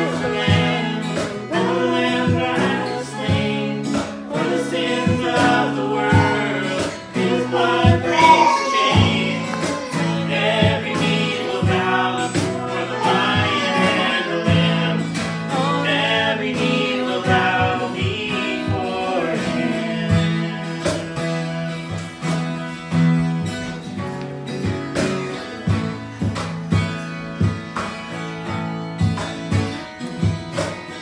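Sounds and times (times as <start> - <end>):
man singing worship song: 0.0 - 22.0
acoustic guitar strumming: 0.0 - 31.0.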